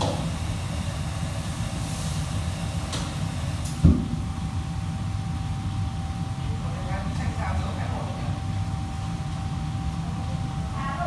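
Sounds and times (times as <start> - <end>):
gas burners and extractor rumbling: 0.0 - 11.0.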